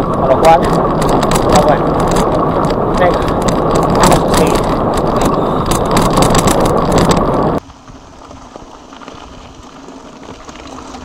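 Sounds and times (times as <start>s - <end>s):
rattling clicks: 0.0s - 7.6s
tyres rolling on gravel: 0.0s - 11.0s
wind rumble on microphone: 0.0s - 11.0s.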